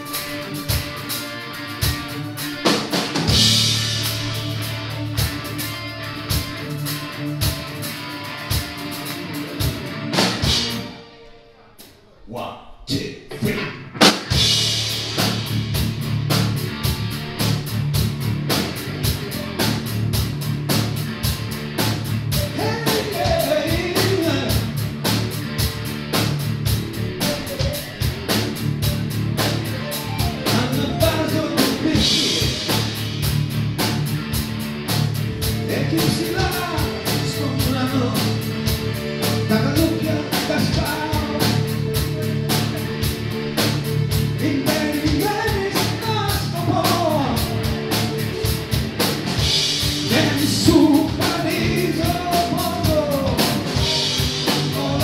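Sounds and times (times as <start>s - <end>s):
live rock band playing: 0.0s - 11.6s, 13.8s - 55.0s
male lead vocal singing: 22.5s - 24.6s, 30.4s - 32.8s, 35.6s - 38.5s, 39.3s - 42.7s, 44.4s - 47.7s, 50.0s - 55.0s.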